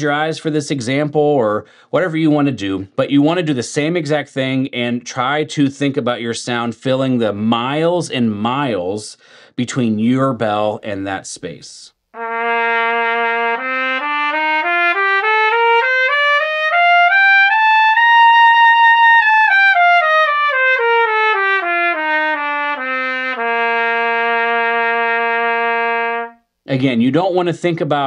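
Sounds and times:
trumpet playing a scale: 0:12.2 - 0:26.5.

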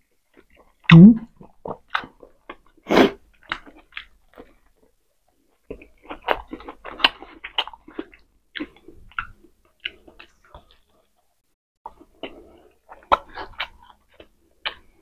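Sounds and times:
biting and chewing: 0:00.3 - 0:11.1, 0:11.9 - 0:15.0
wet mouth clicks: 0:00.8 - 0:01.5.

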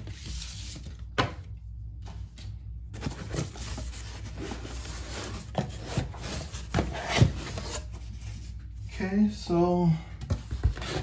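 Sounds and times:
packing foam and cardboard rustling: 0:02.9 - 0:08.6.

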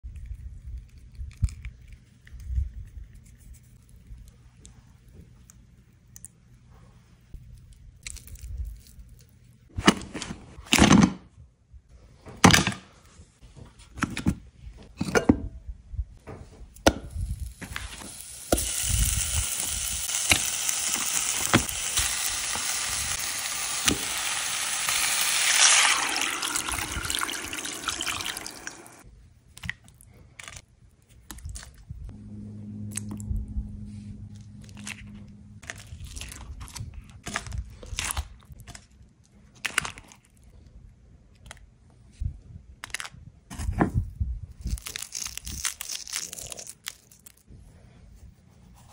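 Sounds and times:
water pouring into a pot: 0:18.6 - 0:29.0.

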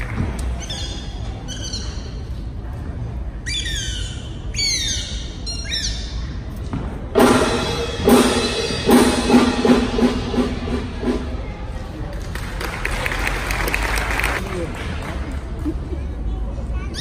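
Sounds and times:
circus band accented hits: 0:07.1 - 0:11.5.

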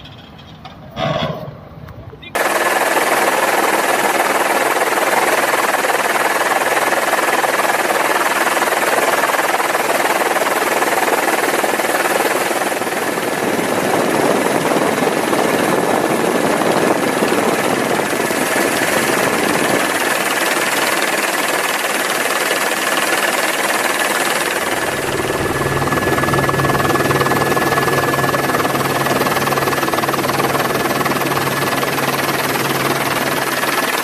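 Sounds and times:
helicopter engine and rotor: 0:02.3 - 0:34.0
deeper hum: 0:24.3 - 0:32.2
thin high whine: 0:24.4 - 0:30.7.

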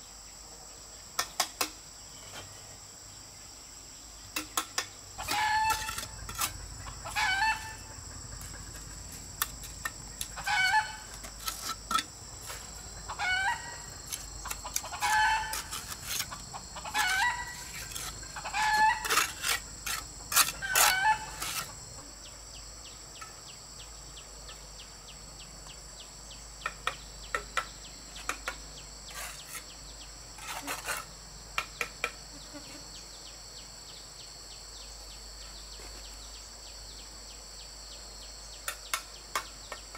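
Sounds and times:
high insect drone: 0:00.0 - 0:39.9
chickens clucking: 0:14.5 - 0:19.1.

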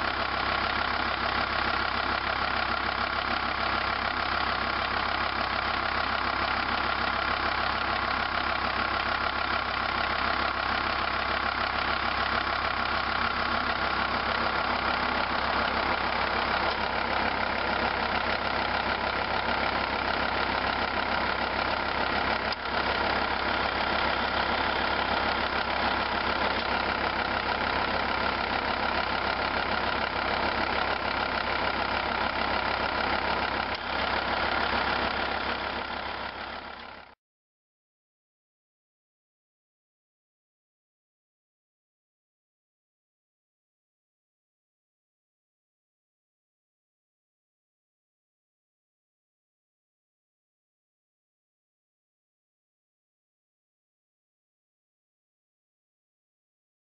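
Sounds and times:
diesel engine idling: 0:00.0 - 0:37.2.

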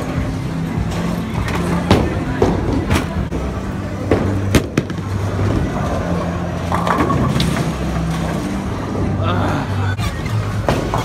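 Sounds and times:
bowling balls rolling rumble: 0:00.0 - 0:09.2.

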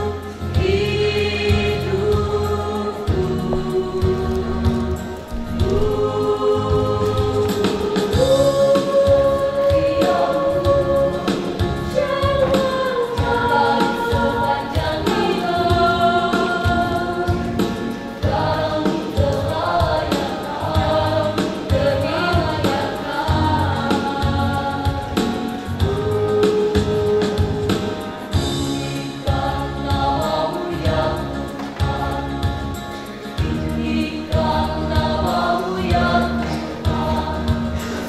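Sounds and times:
choir singing in parts: 0:00.0 - 0:38.0
steady low beat: 0:03.1 - 0:08.6.

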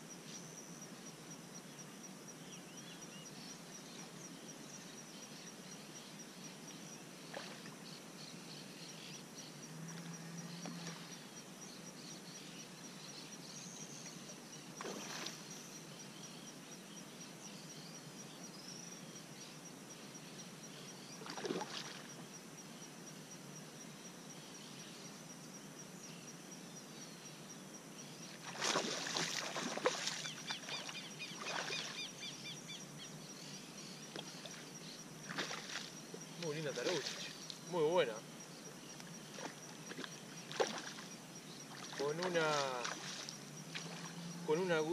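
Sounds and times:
water splashing: 0:21.2 - 0:22.1, 0:28.4 - 0:32.0, 0:35.3 - 0:37.5, 0:39.3 - 0:41.1, 0:41.7 - 0:44.9.

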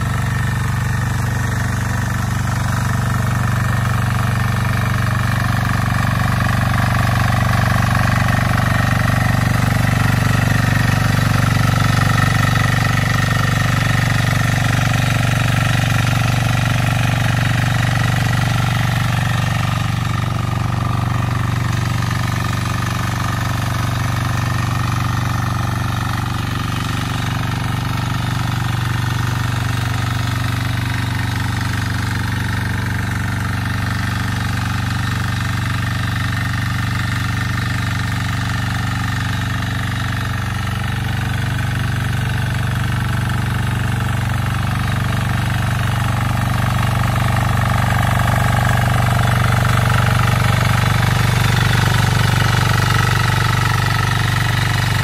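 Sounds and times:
tiller diesel engine running: 0:00.0 - 0:55.0.

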